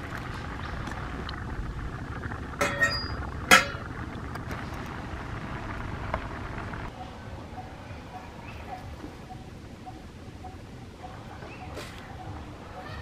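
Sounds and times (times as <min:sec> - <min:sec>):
low background rumble: 0:00.0 - 0:13.0
metal utensils clinking: 0:02.6 - 0:03.9.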